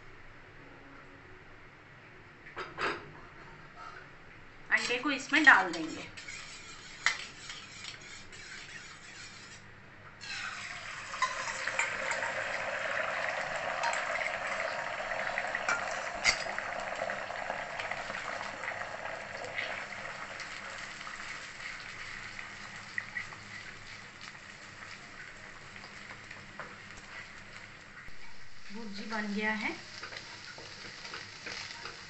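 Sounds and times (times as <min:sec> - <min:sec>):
eggs sizzling in hot oil: 0:04.7 - 0:09.6, 0:10.2 - 0:32.0
spatula knocking and scraping: 0:05.6 - 0:09.6, 0:30.0 - 0:32.0.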